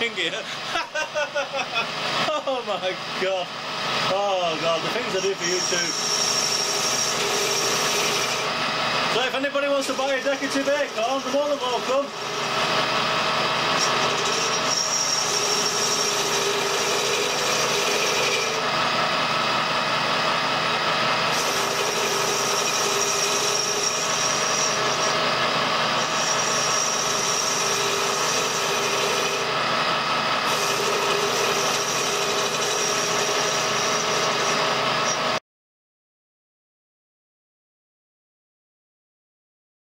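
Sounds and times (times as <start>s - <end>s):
metal lathe running: 0.0s - 35.4s
cutter hissing on brass: 5.0s - 8.4s, 13.7s - 18.6s, 21.3s - 25.3s, 26.0s - 29.5s, 30.5s - 35.4s.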